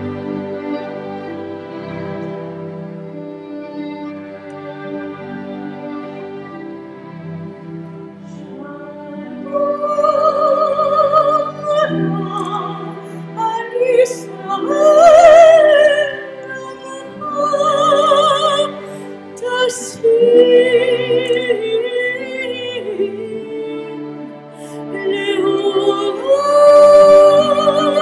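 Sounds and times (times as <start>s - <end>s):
soft orchestral accompaniment: 0.0s - 28.0s
soprano singing with vibrato: 8.4s - 28.0s.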